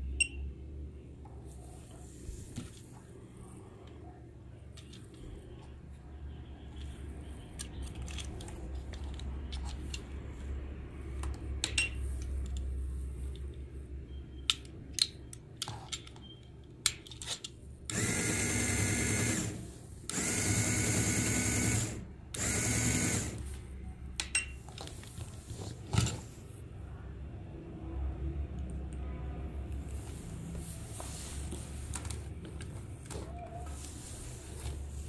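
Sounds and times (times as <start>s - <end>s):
plastic battery box and clips clicking: 7.5s - 10.1s
small electric motor whirring: 17.9s - 23.4s.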